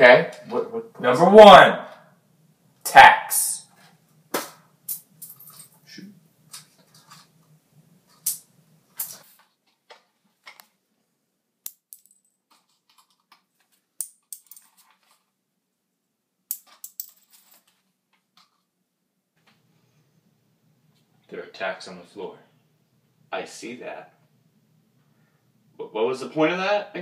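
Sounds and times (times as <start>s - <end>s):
thumbtacks clicking on tile floor: 14.0s - 15.0s, 16.5s - 17.3s.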